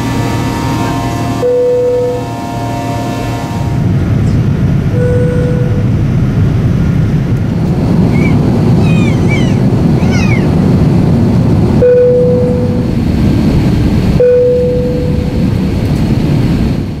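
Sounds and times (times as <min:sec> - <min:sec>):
cabin air and engine noise: 0:00.0 - 0:17.0
low chime tone: 0:05.0 - 0:05.9, 0:11.8 - 0:12.8, 0:14.2 - 0:15.4.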